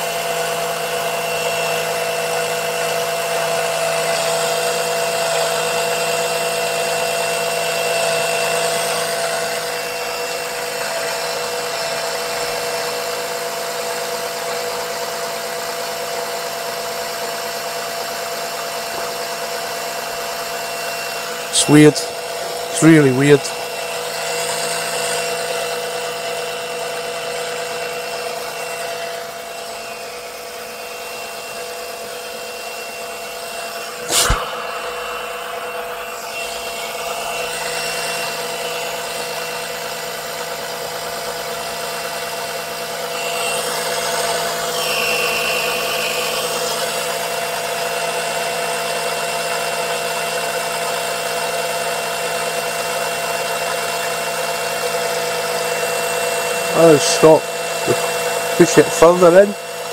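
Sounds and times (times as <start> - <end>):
electric suction pump humming: 0.0 - 59.9.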